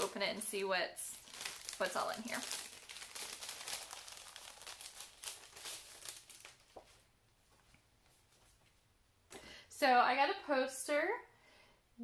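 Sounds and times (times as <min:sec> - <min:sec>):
paper packaging crinkling: 0:00.0 - 0:07.1.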